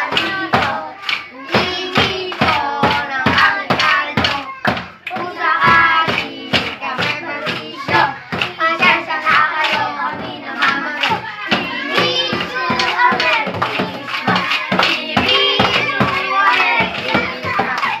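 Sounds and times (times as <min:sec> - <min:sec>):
children singing a carol: 0:00.0 - 0:18.0
makeshift drums beating: 0:00.0 - 0:18.0.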